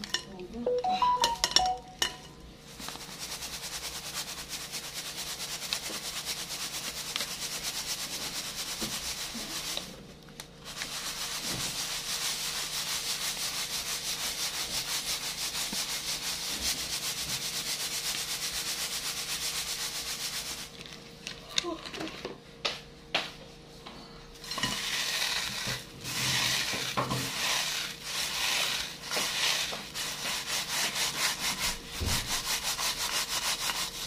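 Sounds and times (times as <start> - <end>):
crumbs sifted through mesh strainer: 2.7 - 21.0, 24.4 - 34.0.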